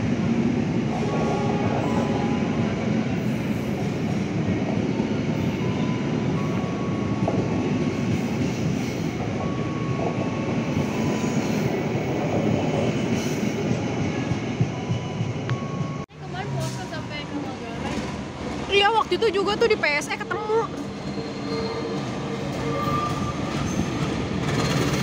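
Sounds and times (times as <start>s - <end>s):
train wheels rumbling on rails: 0.0s - 25.0s
rail joint clicks: 3.4s - 16.0s
high wheel squeals: 20.8s - 24.8s.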